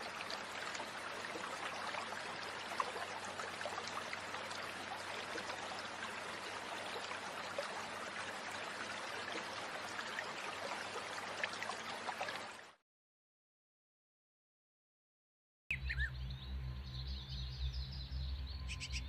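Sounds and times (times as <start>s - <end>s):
stream rushing: 0.0s - 12.7s.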